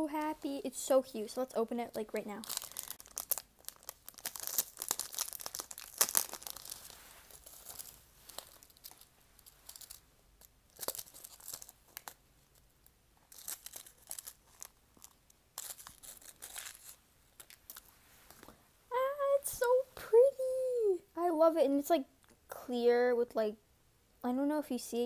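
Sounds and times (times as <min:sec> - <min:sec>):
plastic packaging crinkling: 0:01.9 - 0:12.7, 0:13.3 - 0:18.5.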